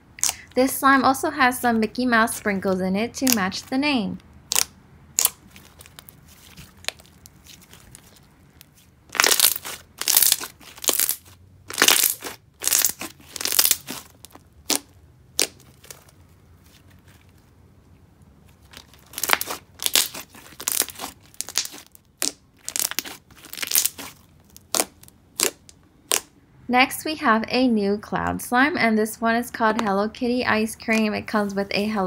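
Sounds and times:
slime crackling and popping: 0:04.5 - 0:16.1, 0:18.6 - 0:26.3.

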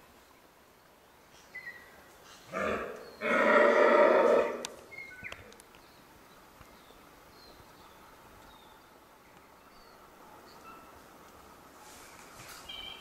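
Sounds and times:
deer stag roaring: 0:02.5 - 0:04.7.

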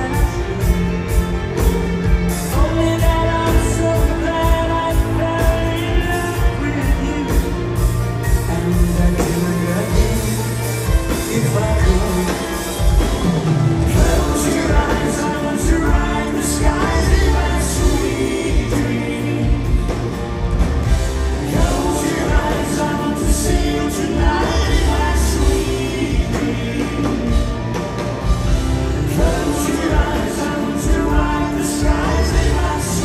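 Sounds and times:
soft-rock band playing live: 0:00.0 - 0:33.0
man singing into microphone: 0:02.5 - 0:12.8.

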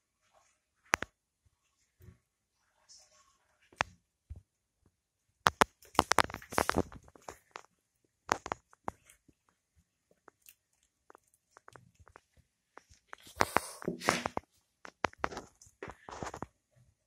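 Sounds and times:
cat biting and chewing: 0:10.1 - 0:15.6.

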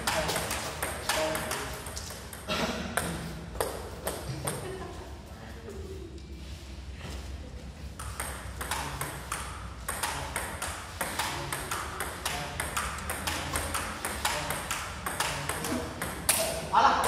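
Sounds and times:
table tennis ball clicking: 0:08.0 - 0:16.5.

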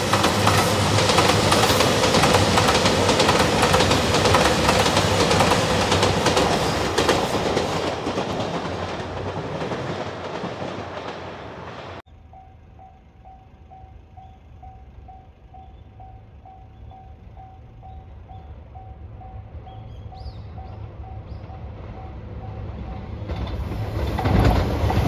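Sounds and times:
train wheels clacking: 0:00.0 - 0:12.0, 0:12.8 - 0:25.0
diesel train passing: 0:00.0 - 0:25.0.

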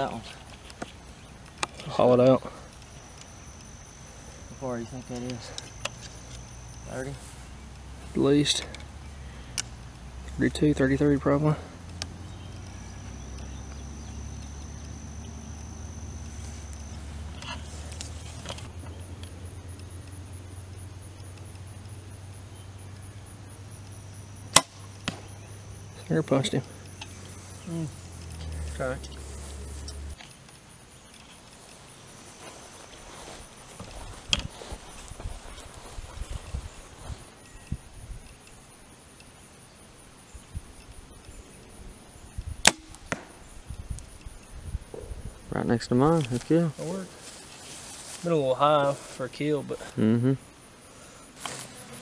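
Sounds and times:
bow string crack: 0:24.5 - 0:25.5, 0:42.6 - 0:43.5.

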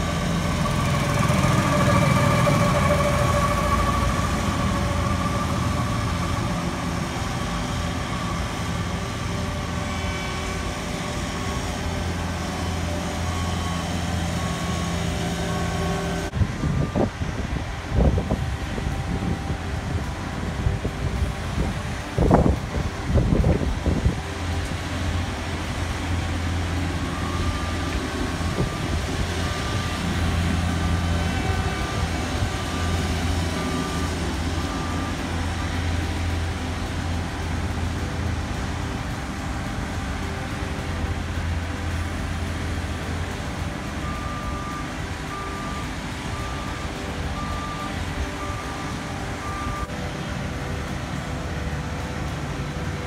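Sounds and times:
diesel engines droning: 0:00.0 - 0:53.0
backup alarm beeping: 0:26.2 - 0:36.3, 0:43.8 - 0:49.9.

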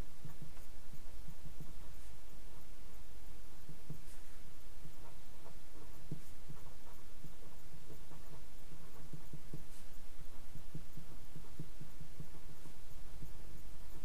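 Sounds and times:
steady low hum: 0:00.0 - 0:14.0
marker writing on paper: 0:03.9 - 0:12.8.

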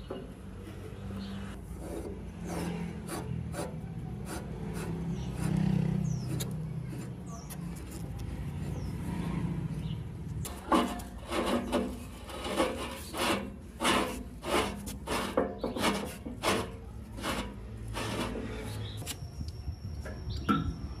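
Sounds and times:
hand tool rasping strokes: 0:01.7 - 0:07.5, 0:10.5 - 0:19.2.

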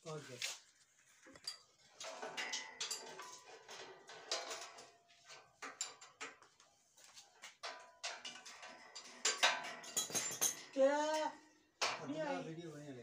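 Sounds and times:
steel pieces clanking on metal: 0:01.4 - 0:06.4, 0:07.5 - 0:11.2.

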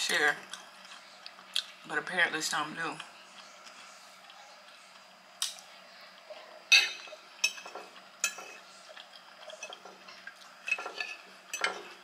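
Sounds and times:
metal fork clinking on a plate: 0:06.7 - 0:08.6, 0:10.6 - 0:12.0.

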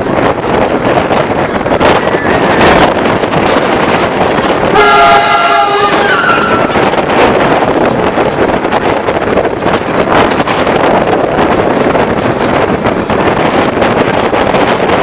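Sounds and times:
wind and track noise: 0:00.0 - 0:15.0
train horn: 0:04.7 - 0:06.8.

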